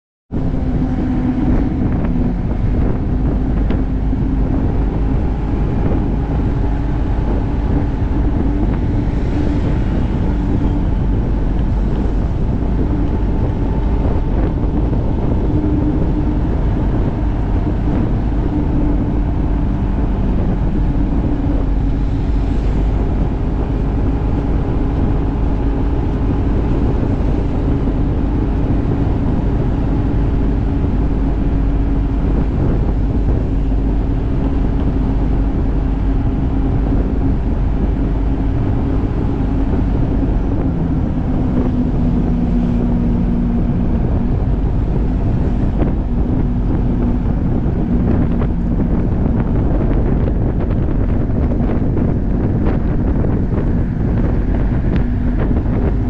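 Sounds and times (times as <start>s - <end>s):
motorcycle engine cruising: 0.3s - 56.0s
wind rumbling on microphone: 0.3s - 56.0s.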